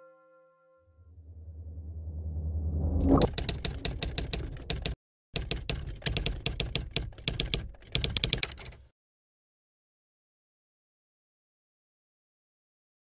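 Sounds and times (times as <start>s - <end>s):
low rumble: 1.1s - 4.9s
typewriter keystrokes clattering: 3.2s - 8.9s.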